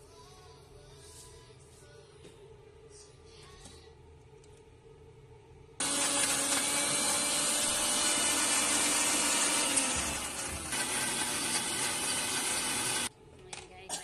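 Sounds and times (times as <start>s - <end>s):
mixer grinder running: 5.8s - 13.1s.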